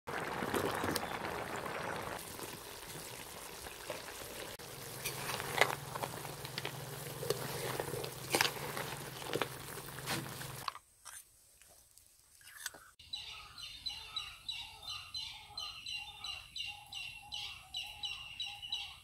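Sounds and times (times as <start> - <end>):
pot bubbling and hissing: 0.1 - 10.7.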